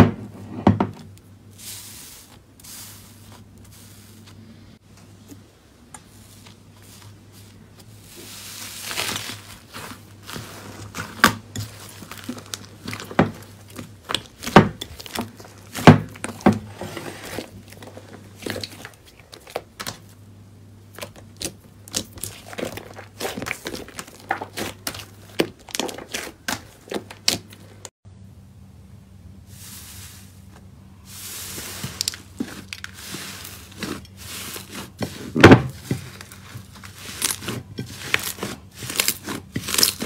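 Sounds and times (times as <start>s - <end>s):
grainy rustle: 1.5s - 19.7s, 29.4s - 40.0s
hands squishing slime: 20.9s - 27.8s, 31.4s - 40.0s.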